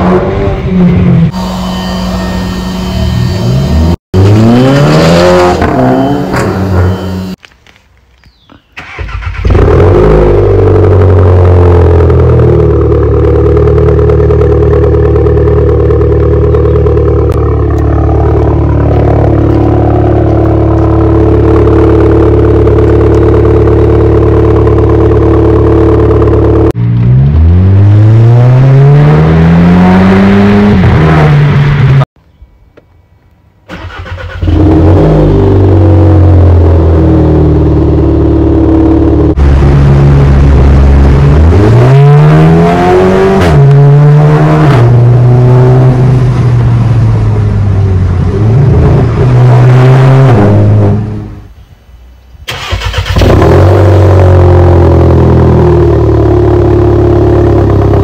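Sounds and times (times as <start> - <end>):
engine revving: 0.0 - 7.4, 8.8 - 32.1, 33.7 - 51.4, 52.5 - 58.0
car engine idling: 12.6 - 26.7.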